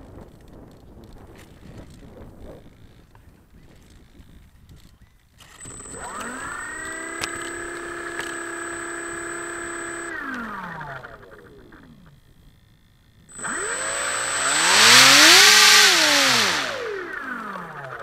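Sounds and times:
model plane motor whining: 1.4s - 18.0s
propeller air rush: 5.6s - 11.6s, 13.3s - 18.0s.

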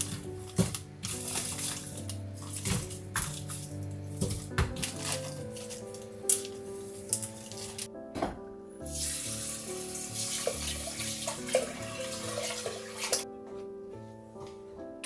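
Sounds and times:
soft background music: 0.0s - 15.0s
faucet water splashing into pot: 8.9s - 13.2s.

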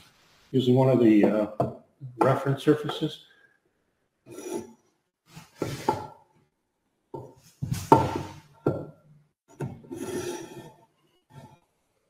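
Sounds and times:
tools knocking on wooden workbench: 7.2s - 9.0s.

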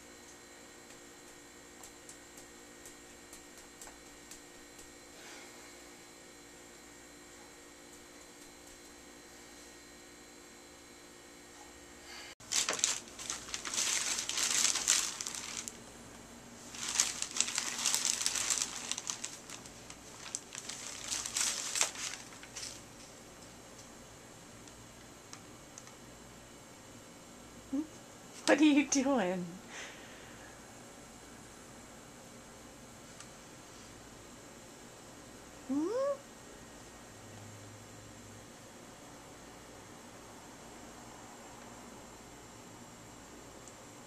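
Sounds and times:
faint room hum: 0.0s - 44.0s
plastic bag and paper crinkling: 12.4s - 15.9s, 16.6s - 23.2s.

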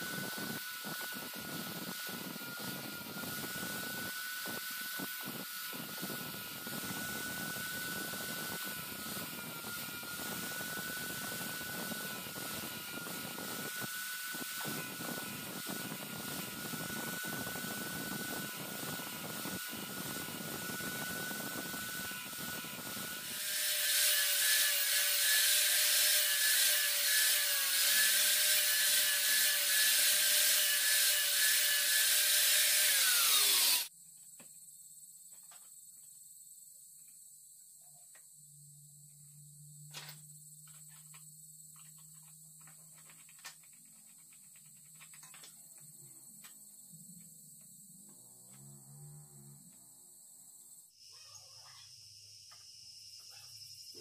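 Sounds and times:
angle grinder grinding saw blade: 0.0s - 33.9s.

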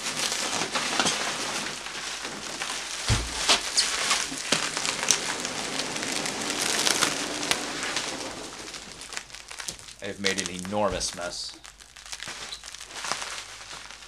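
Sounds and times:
packing peanuts rustling: 0.0s - 14.0s
dull thump: 3.0s - 3.8s.

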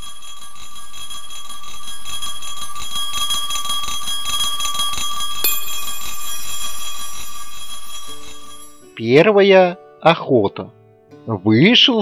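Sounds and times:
small bell ringing: 0.0s - 8.9s.

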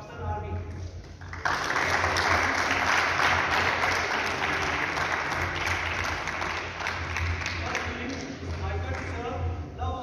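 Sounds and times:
audience applause: 1.2s - 9.1s.

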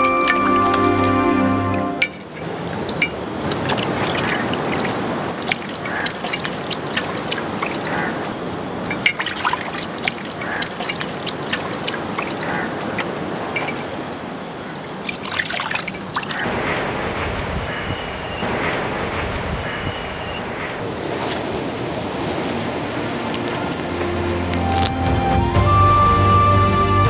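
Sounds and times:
water trickling and dripping: 0.0s - 16.6s.

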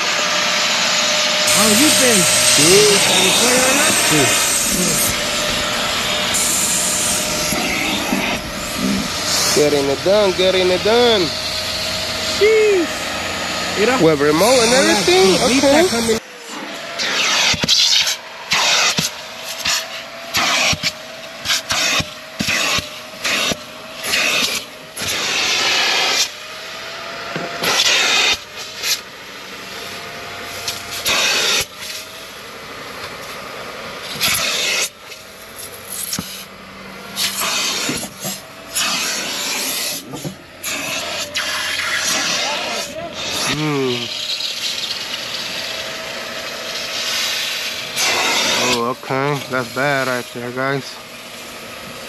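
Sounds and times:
suction whistle: 0.0s - 26.4s
upholstery tool spray and suction: 0.0s - 52.0s.

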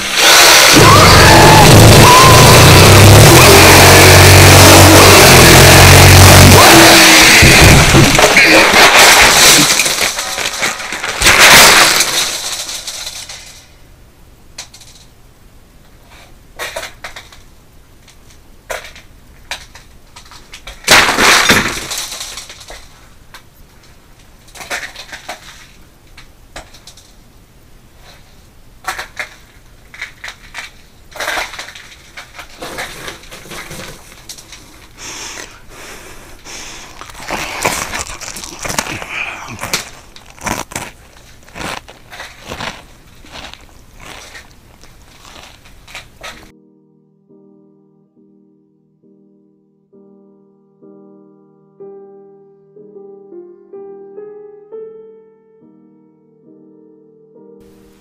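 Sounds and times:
cardboard box being crushed: 0.0s - 13.6s, 20.7s - 22.9s, 36.7s - 46.5s
scattered crackles and clicks: 0.0s - 13.8s, 14.5s - 15.2s, 15.8s - 27.2s, 27.9s - 35.6s, 36.4s - 46.5s.

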